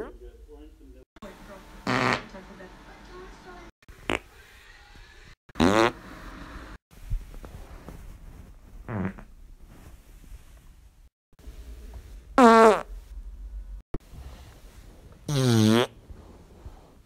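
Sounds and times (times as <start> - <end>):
farts: 1.9 - 2.3, 4.0 - 4.3, 5.6 - 6.0, 8.8 - 9.3, 12.4 - 12.9, 15.3 - 16.0.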